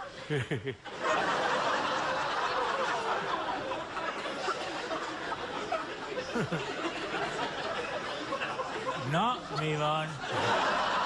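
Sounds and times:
audience laughing: 0.1 - 11.0.

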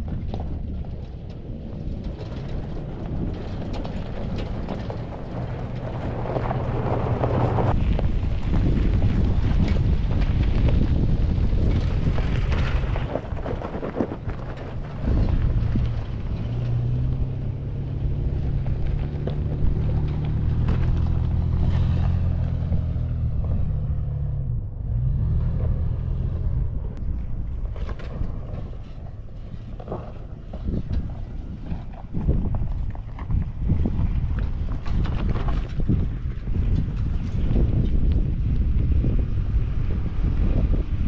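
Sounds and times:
truck engine under load: 0.0 - 41.0
wind buffeting microphone: 0.0 - 41.0.

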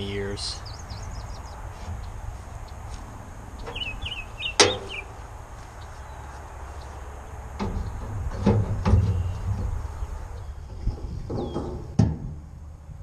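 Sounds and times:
wind rumble on microphone: 0.0 - 13.0
sheet-metal grill clanking: 7.6 - 9.8.

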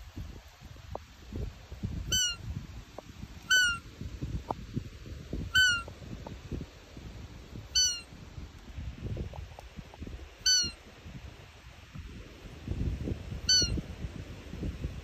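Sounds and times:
deer call high peeps: 2.1 - 2.4, 3.5 - 3.8, 5.5 - 5.9, 7.8 - 8.1, 10.4 - 10.8, 13.5 - 13.8.

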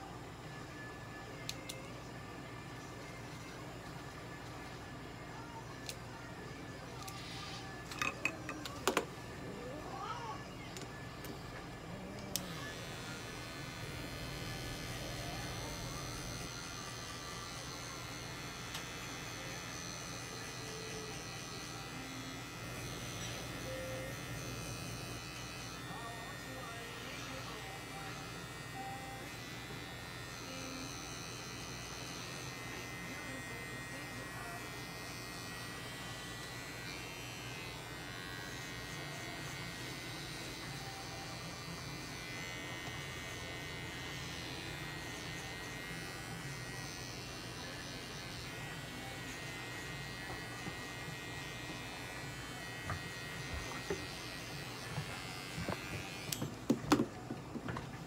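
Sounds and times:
pet trimmer buzzing: 12.0 - 57.2.

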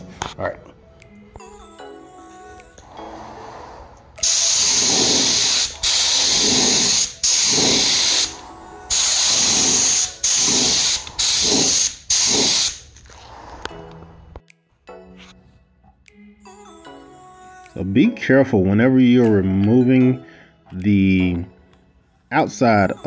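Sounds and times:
spray gun air hiss: 4.2 - 12.9.

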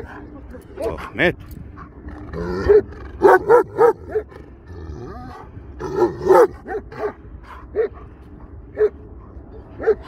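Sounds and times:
dog barking: 2.6 - 4.2, 6.0 - 7.2, 9.8 - 10.0.

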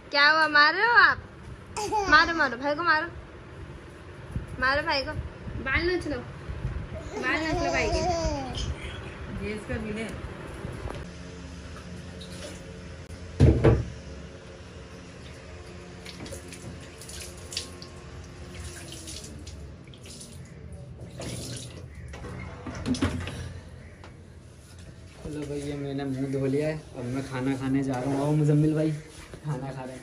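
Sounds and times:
water splashing on concrete floor: 16.0 - 21.9.

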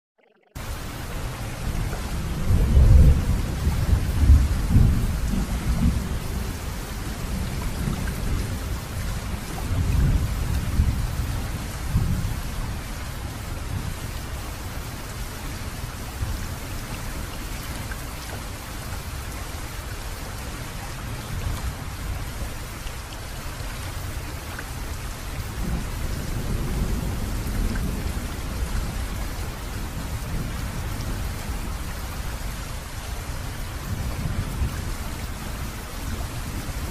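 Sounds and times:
steady rain: 0.6 - 36.9
rolling thunder: 1.4 - 12.7.

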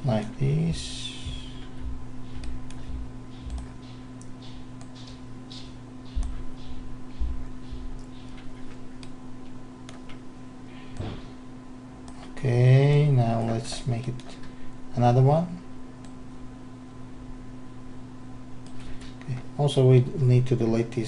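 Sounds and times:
low electrical hum: 0.0 - 21.0
computer mouse clicking: 2.3 - 6.7, 8.0 - 9.2.

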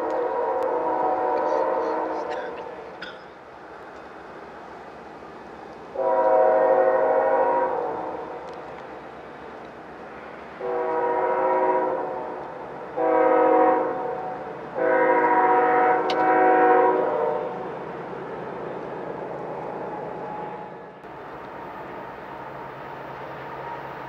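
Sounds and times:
locomotive air horn blasts: 0.0 - 2.6, 5.9 - 8.3, 10.6 - 12.4, 13.0 - 17.6.

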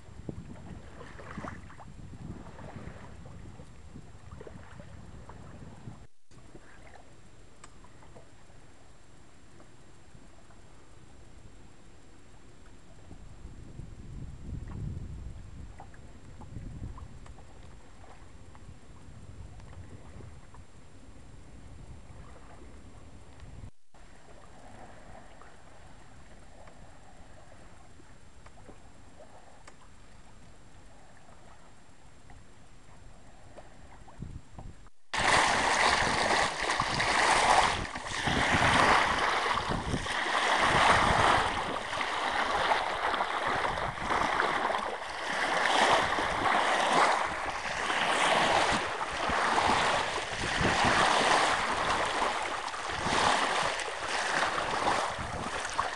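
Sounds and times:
water rushing along boat hull: 0.0 - 8.7, 24.0 - 55.9
faint hiss of wind and water: 0.0 - 55.9.

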